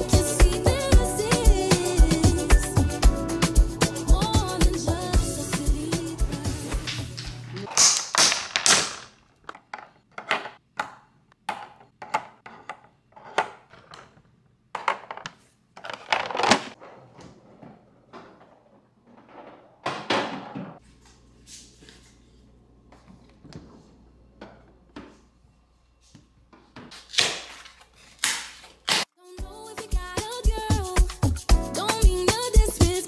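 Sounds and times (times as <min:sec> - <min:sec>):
household objects knocking and clattering: 0:06.9 - 0:16.8.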